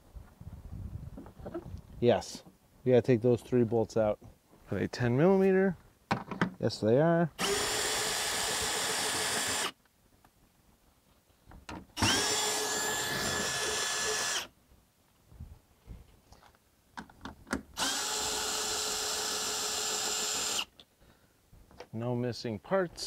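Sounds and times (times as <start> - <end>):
cordless drill whining: 7.4 - 9.8, 12.0 - 14.5, 17.8 - 20.7.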